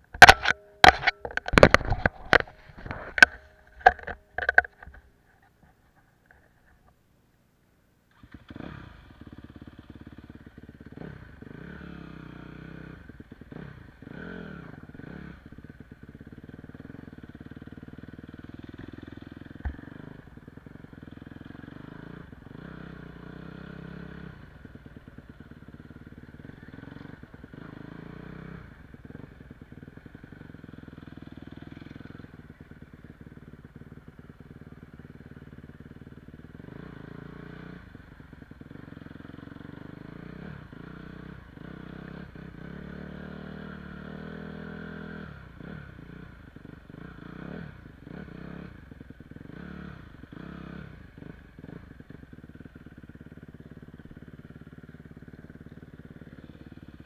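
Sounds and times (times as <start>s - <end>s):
sharp click: 0.1s - 5.0s
dirt bike engine revving: 8.1s - 57.0s.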